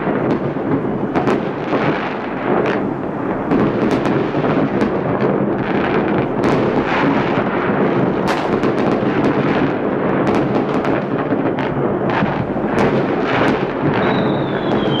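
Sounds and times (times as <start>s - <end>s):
fireworks banging and cracking: 0.0s - 15.0s
high falling whistle: 14.0s - 15.0s.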